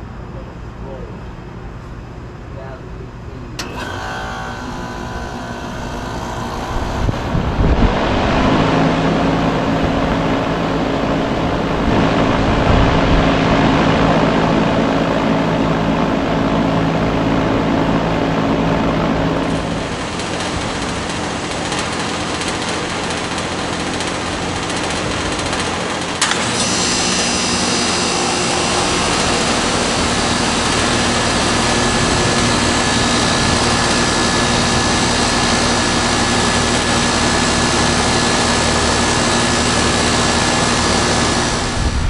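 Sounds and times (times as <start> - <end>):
air conditioner condenser running: 0.0 - 42.0
outdoor unit running: 0.0 - 42.0.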